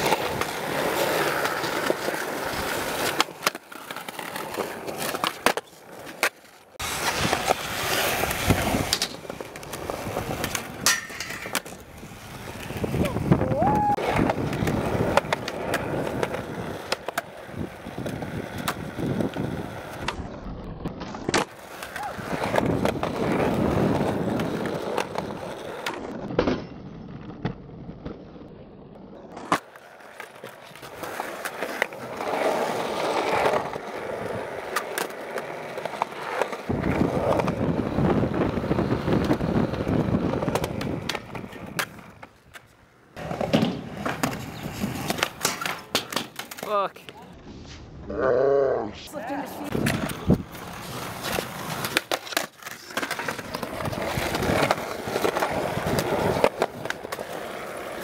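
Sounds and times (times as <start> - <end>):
skateboard trucks grinding ledge: 0.0 - 28.2, 28.8 - 46.8, 49.4 - 58.0
skateboard popping and landing: 0.0 - 47.5, 49.3 - 58.0
skateboard wheels rolling on concrete: 0.0 - 58.0.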